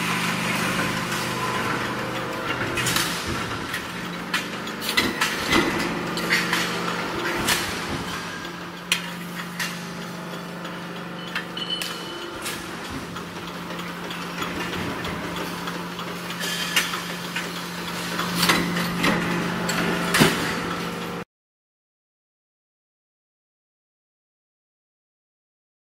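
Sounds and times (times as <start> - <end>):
punch press humming: 0.0 - 21.2
sharp metal clacks: 1.1 - 20.7.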